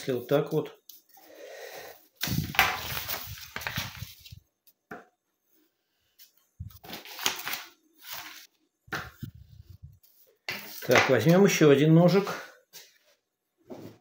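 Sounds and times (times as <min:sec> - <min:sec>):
paper rustling: 0:02.2 - 0:04.4, 0:06.2 - 0:09.3.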